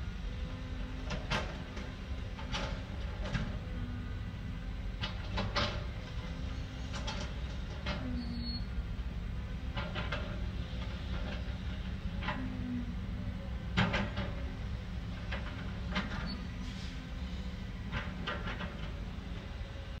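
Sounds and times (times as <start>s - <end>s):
diesel engine rumble: 0.0s - 20.0s
metallic clanks and squeaks: 6.9s - 8.7s, 16.0s - 16.5s.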